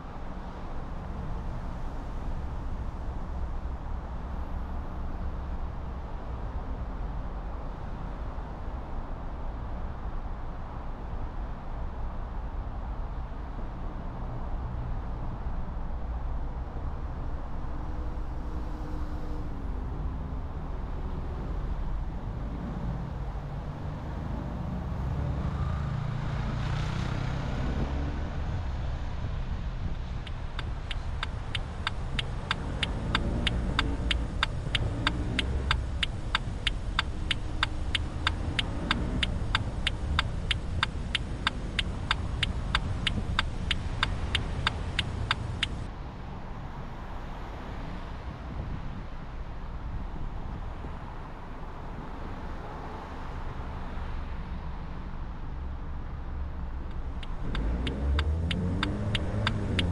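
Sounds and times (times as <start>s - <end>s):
car road and engine rumble: 0.0s - 59.9s
turn signal clicking: 30.2s - 45.9s, 56.8s - 59.9s.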